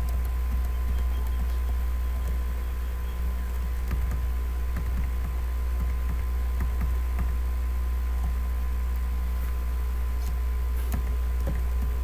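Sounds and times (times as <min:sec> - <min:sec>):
computer mouse clicks: 0:00.0 - 0:02.4
low electrical hum: 0:00.0 - 0:12.0.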